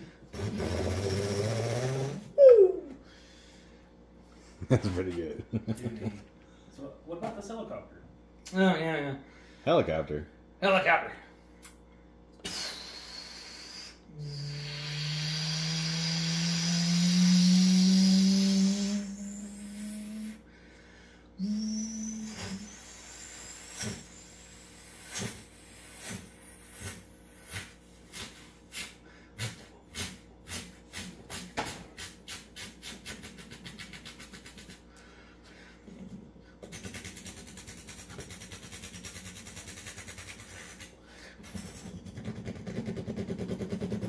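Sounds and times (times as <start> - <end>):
man imitating a helicopter: 0.3 - 3.0, 12.4 - 20.4, 32.0 - 34.8, 36.7 - 44.0.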